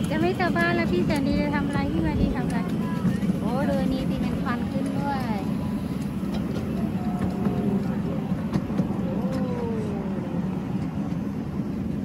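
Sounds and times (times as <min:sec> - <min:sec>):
faint voices: 0:00.0 - 0:12.0
locomotive engine humming: 0:00.0 - 0:12.0.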